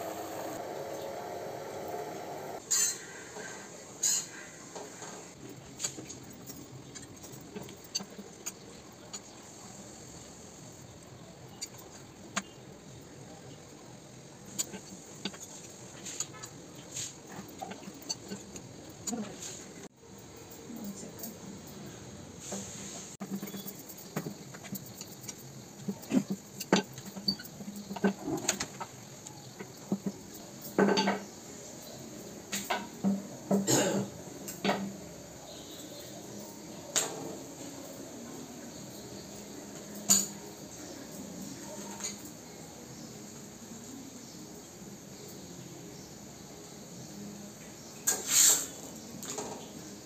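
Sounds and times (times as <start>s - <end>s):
faint steady gas hiss: 0.0s - 50.0s
utensils tapping pans: 4.0s - 4.4s.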